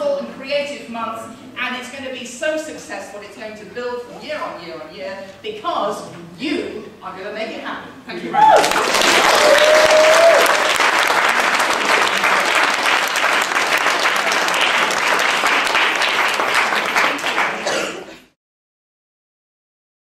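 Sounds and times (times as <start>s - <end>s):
audience applauding: 8.4s - 18.1s.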